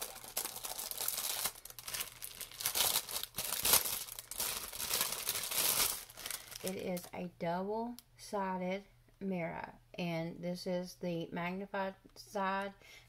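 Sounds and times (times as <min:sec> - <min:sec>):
packaging crinkling and rustling: 0:00.0 - 0:07.1.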